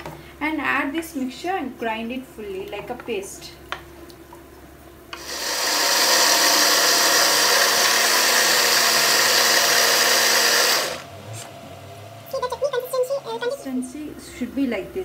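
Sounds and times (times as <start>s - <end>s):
mixer grinder running: 5.1s - 11.1s.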